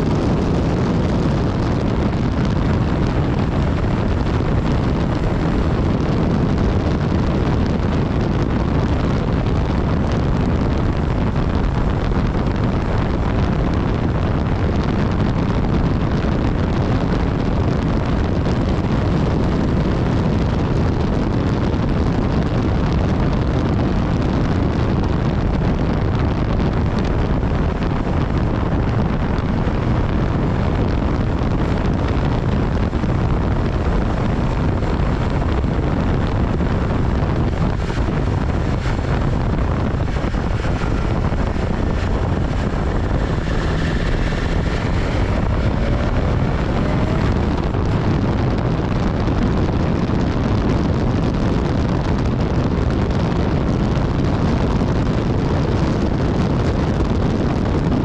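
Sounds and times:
motorcycle engine: 0.0 - 15.3, 29.6 - 49.5
road noise: 0.0 - 58.0
wind rush on microphone: 0.0 - 58.0.

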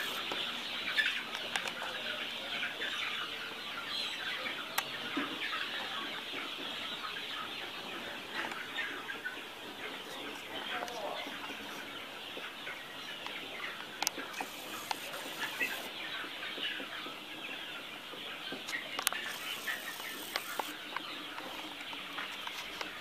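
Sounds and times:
chickens clucking: 0.0 - 23.0
sharp clicks: 19.0 - 20.8.

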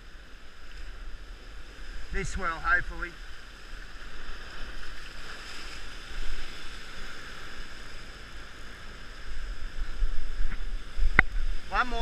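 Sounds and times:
surf washing over rocks: 0.0 - 12.0
wind buffeting microphone: 9.2 - 12.0.

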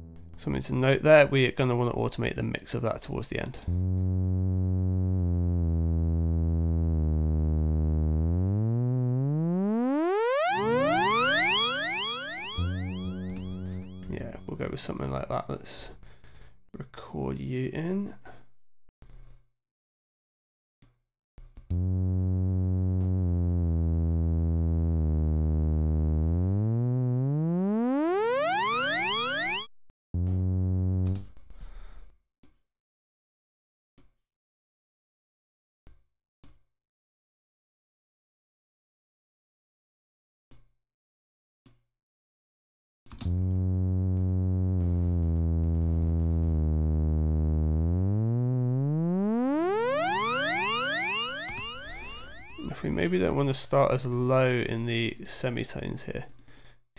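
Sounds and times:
synthesizer rising note: 3.7 - 14.6, 21.8 - 31.4, 43.3 - 53.1.

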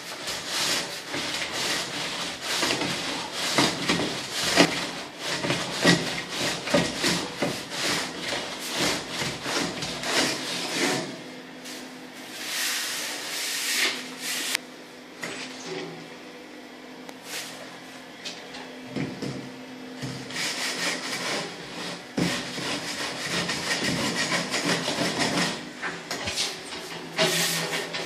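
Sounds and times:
metal straightedge scraping cement: 0.0 - 11.2, 20.3 - 28.0.

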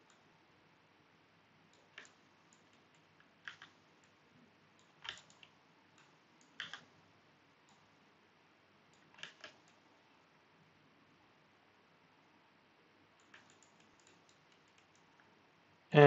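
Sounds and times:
mouse and keyboard clicks: 1.7 - 4.2, 4.8 - 6.9, 8.9 - 9.8, 13.2 - 15.3.

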